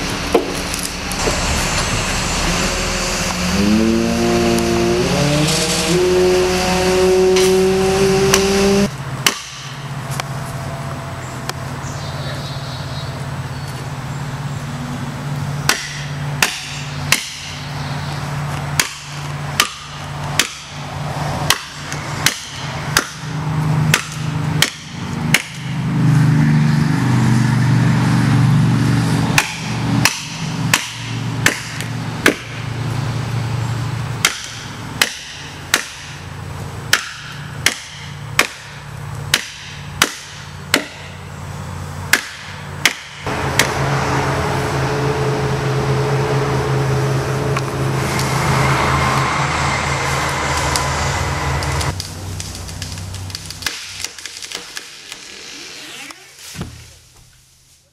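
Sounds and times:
hard hammering blows: 0.0 - 10.3, 15.3 - 27.4, 28.0 - 41.3, 42.0 - 52.0
steady low drone: 0.0 - 53.6.

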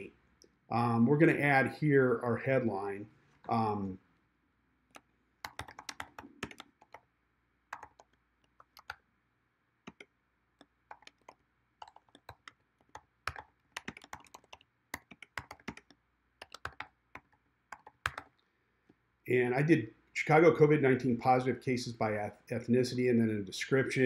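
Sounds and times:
computer keyboard typing: 5.0 - 7.1, 7.7 - 9.0, 9.9 - 18.4.

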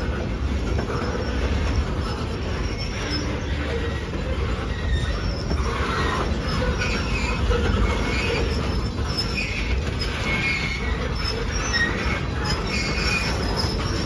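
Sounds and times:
train wheels rumbling on rail: 0.0 - 14.0
wheels squealing: 0.0 - 14.0.

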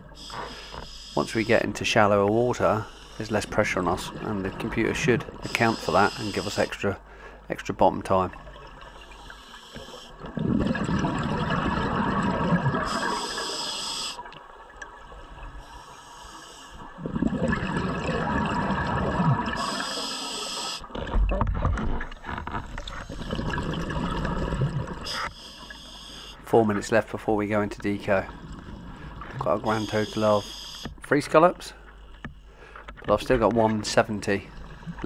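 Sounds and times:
regulator inhale hiss: 0.1 - 1.4, 2.8 - 3.2, 5.5 - 7.4, 9.1 - 10.1, 12.9 - 14.3, 15.6 - 16.8, 19.6 - 20.9, 25.1 - 26.4, 30.4 - 30.9
exhaled bubbles burbling: 3.4 - 5.6, 10.2 - 13.4, 16.9 - 19.7, 22.7 - 25.2.

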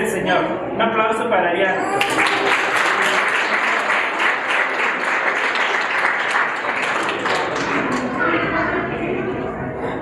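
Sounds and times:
people applauding: 1.9 - 8.8.

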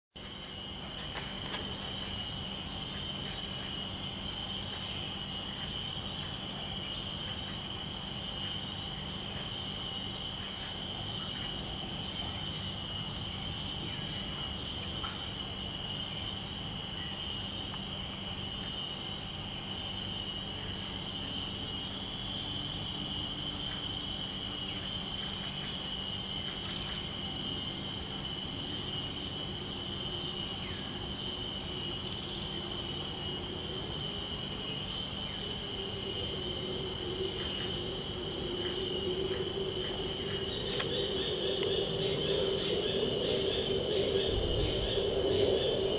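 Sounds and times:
insects buzzing: 0.2 - 45.9
rapid insect chirps: 0.2 - 45.9.

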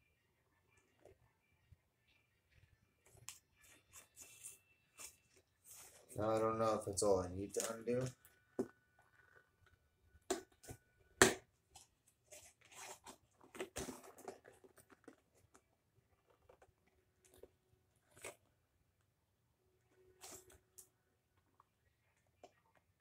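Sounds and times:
cardboard cracking: 12.4 - 18.4.

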